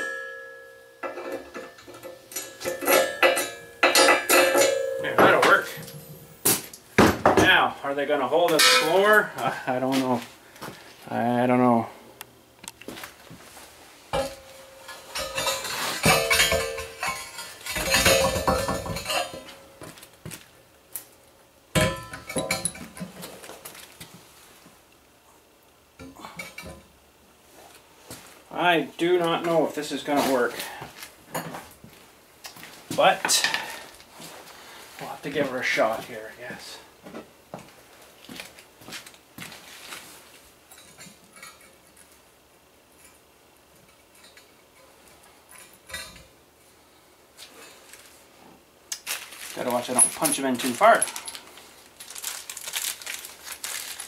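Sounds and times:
sharp metallic clank: 0.0s - 6.6s, 8.6s - 9.1s
metal clatter: 1.0s - 6.3s, 14.1s - 19.6s.

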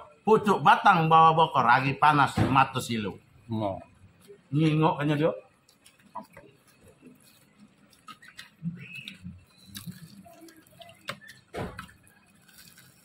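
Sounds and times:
person chewing: 5.7s - 13.0s.

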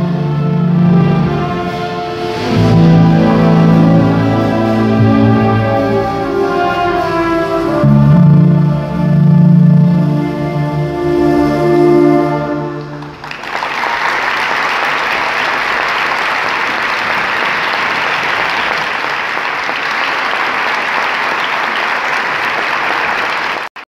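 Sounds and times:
wind band final chord: 0.0s - 13.2s
audience applause: 12.8s - 23.8s.

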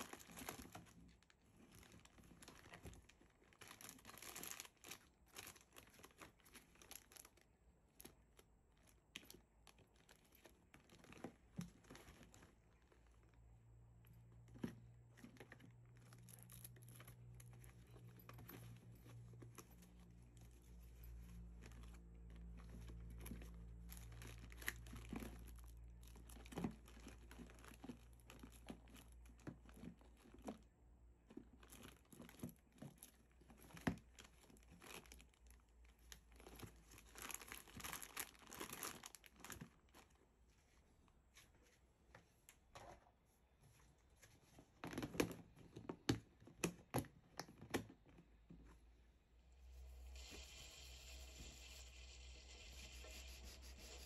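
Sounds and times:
crinkling and tearing: 0.0s - 40.2s
low steady hum: 48.6s - 54.0s.

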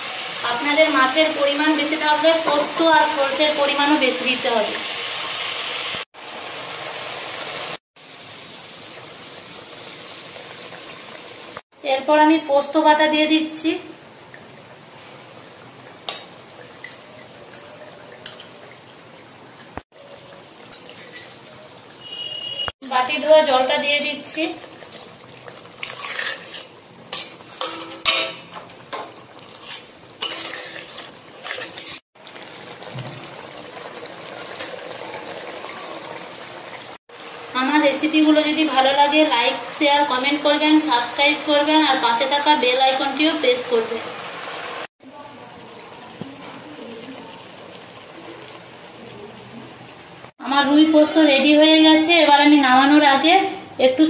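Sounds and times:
fish simmering in gravy: 24.6s - 27.5s, 29.2s - 37.5s, 44.2s - 50.4s
metal spatula scraping metal pan: 25.8s - 28.5s, 29.5s - 32.0s.

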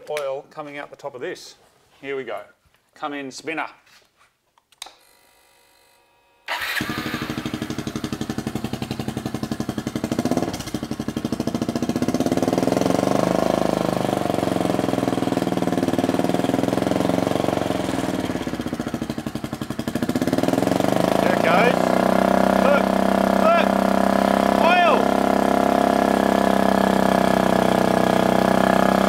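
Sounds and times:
motorcycle engine starting and idling: 6.4s - 29.0s.

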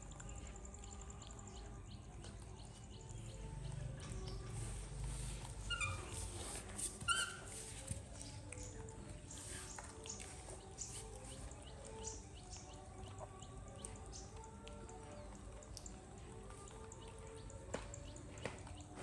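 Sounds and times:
light clicks of eating: 0.0s - 5.6s, 7.8s - 19.0s
faint background music: 0.0s - 19.0s
baby monkey squeaky calls: 5.6s - 7.7s.

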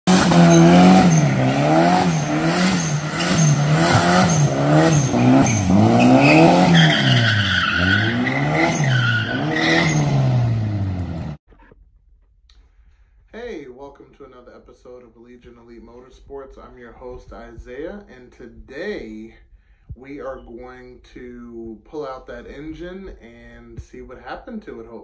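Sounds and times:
car engine revving: 0.0s - 11.4s
tyre squeal: 0.1s - 10.2s.

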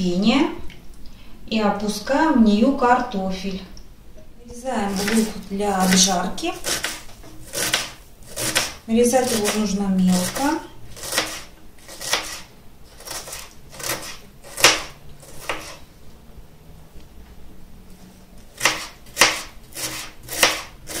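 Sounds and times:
knife chopping on plastic board: 4.9s - 9.6s, 10.2s - 15.8s, 18.6s - 21.0s.

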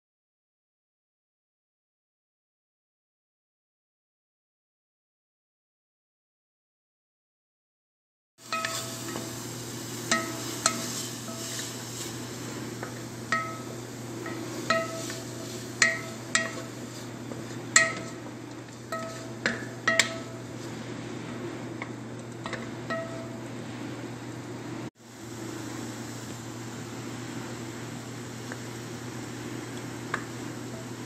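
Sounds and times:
spoon stirring vegetables in pot: 8.4s - 20.8s, 21.8s - 23.4s
steady low hum: 8.4s - 31.0s
spoon knocking against metal pot: 13.3s - 15.2s, 15.8s - 16.8s, 17.8s - 18.2s, 18.9s - 20.4s, 22.4s - 23.3s.

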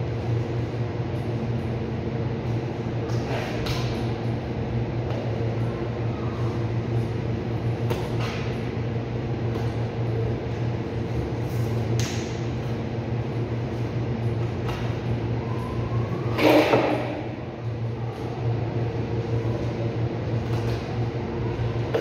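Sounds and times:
refrigeration unit hum: 0.0s - 22.0s.

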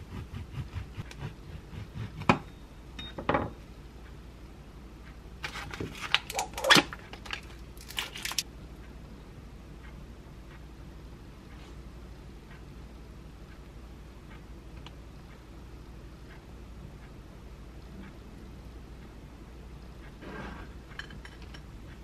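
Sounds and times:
bagel crackling and tearing: 5.5s - 8.4s.

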